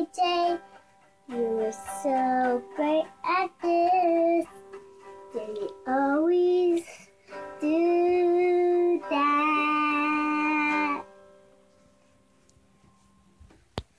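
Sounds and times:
strummed electric guitar: 0.0s - 11.0s
girl singing: 0.0s - 11.2s.

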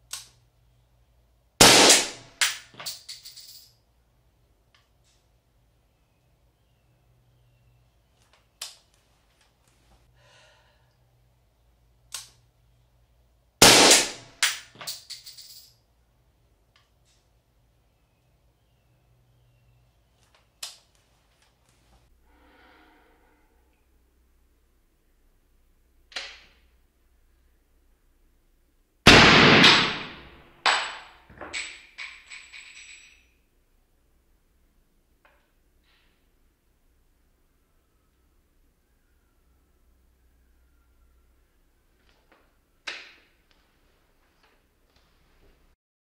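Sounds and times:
suppressed rifle shots: 1.6s - 2.2s, 13.6s - 14.3s, 29.1s - 30.4s
sharp crack: 1.6s - 2.8s, 13.6s - 14.8s, 29.1s - 31.1s
brass casing bouncing on tile: 2.0s - 3.8s, 14.4s - 15.8s, 30.6s - 33.5s
slowed suppressed gunshot: 29.1s - 30.4s.

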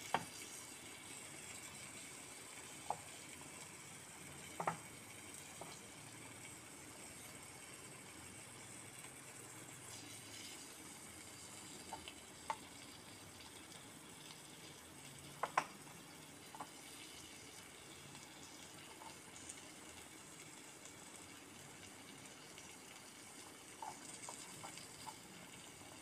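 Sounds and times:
faint steady hiss: 0.0s - 26.0s
utensil tapping clay pots: 4.6s - 4.8s, 15.4s - 15.8s.

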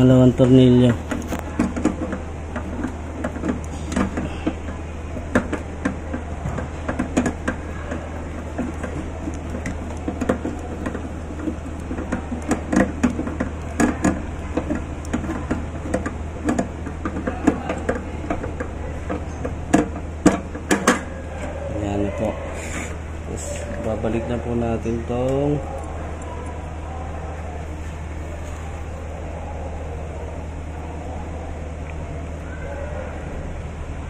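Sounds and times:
steady low hum: 0.0s - 34.0s
screwdriver metal clicks and scrapes: 6.9s - 21.1s.

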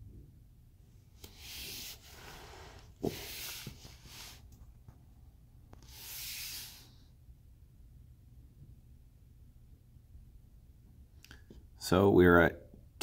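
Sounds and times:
soft hissing rushes: 1.3s - 4.5s, 5.8s - 7.1s.

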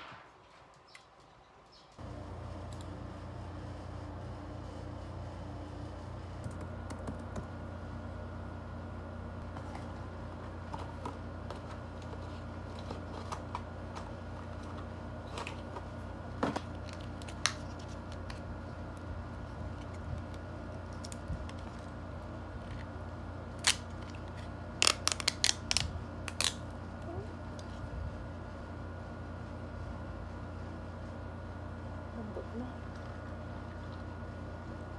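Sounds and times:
electric fan hum: 0.0s - 34.9s
paper wrapper crackling: 16.6s - 18.4s, 23.5s - 26.6s.

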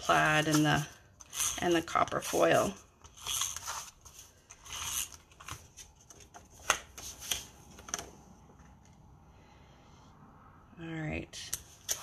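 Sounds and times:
paper scraping: 0.0s - 6.2s.

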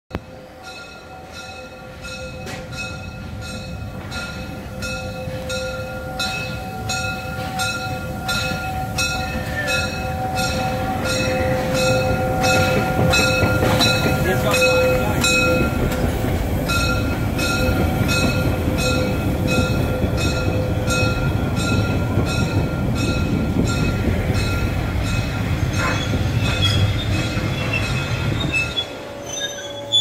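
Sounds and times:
train wheels rumbling on rail: 0.1s - 30.0s
ringing wheel squeal: 25.7s - 30.0s.

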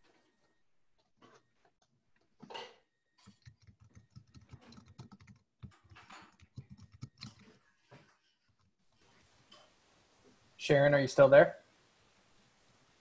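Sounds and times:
typing on computer keyboard: 3.2s - 7.7s.

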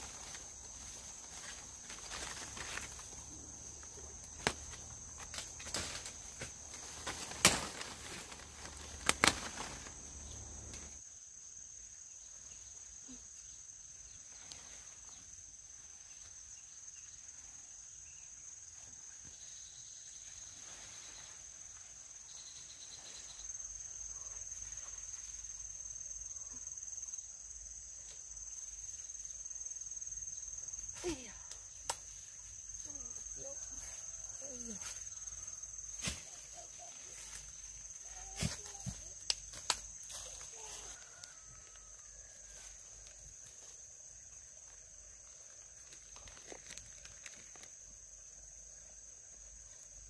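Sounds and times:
leaves rustling: 0.0s - 11.0s, 30.7s - 48.0s
insects trilling: 0.0s - 50.0s
branch snapping: 4.2s - 10.9s, 31.5s - 32.1s, 39.2s - 39.8s.

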